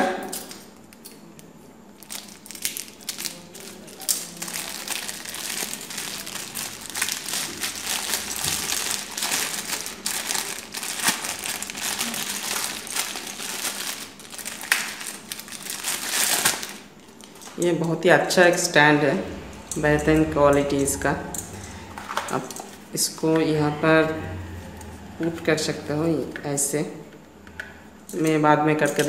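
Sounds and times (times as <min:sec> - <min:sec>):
plastic bag crinkling: 0:02.0 - 0:17.6.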